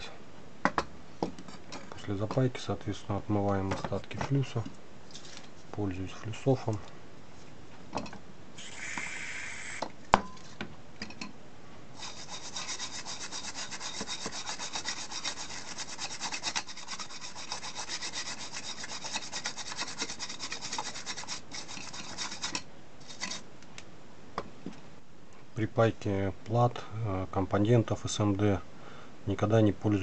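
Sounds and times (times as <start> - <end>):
aerosol spray hissing: 8.6 - 9.8
brush scrubbing circuit board: 12.0 - 23.4.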